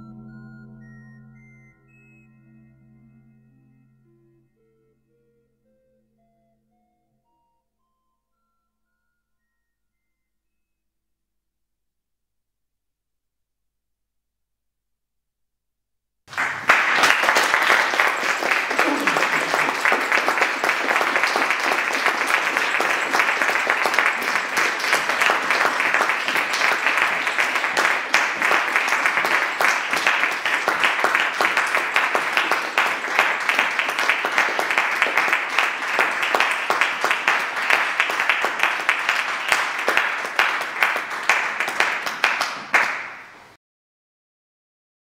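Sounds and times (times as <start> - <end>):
audience applauding: 16.3 - 43.6.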